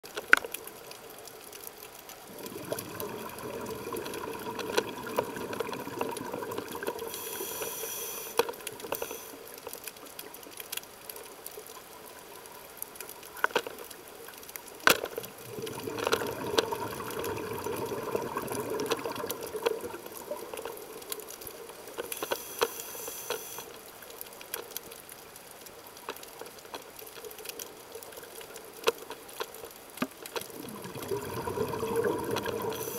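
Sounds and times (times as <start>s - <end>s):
exhaled bubbles underwater: 2.2s - 7.5s, 15.2s - 21.8s, 30.4s - 32.9s
regulator hissing inhalation: 7.0s - 9.4s, 22.2s - 23.7s, 32.6s - 32.9s.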